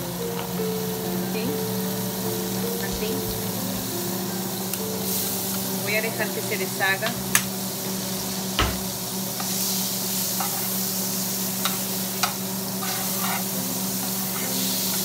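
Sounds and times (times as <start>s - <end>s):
butter sizzling in a frying pan: 0.0s - 15.0s
metal spatula scraping a pan: 10.3s - 10.9s, 11.6s - 15.0s.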